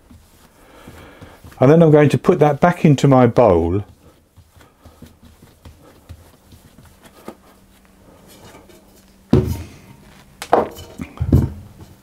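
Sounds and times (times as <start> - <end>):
heavy thump: 9.3 - 11.9.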